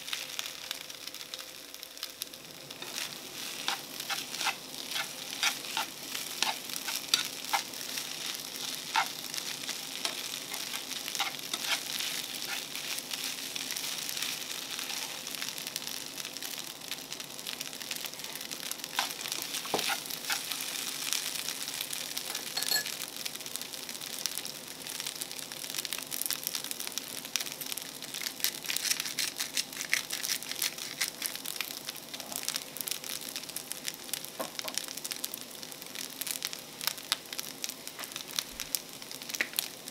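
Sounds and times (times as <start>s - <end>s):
rice sizzling in frying pan: 0.0s - 39.9s
chopsticks scraping pan: 2.8s - 9.2s, 10.0s - 12.9s, 19.0s - 20.6s.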